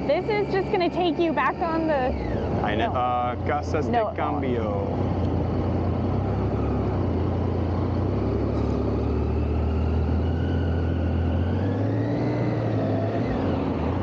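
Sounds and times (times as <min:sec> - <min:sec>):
motorcycle engine running: 0:00.0 - 0:11.5.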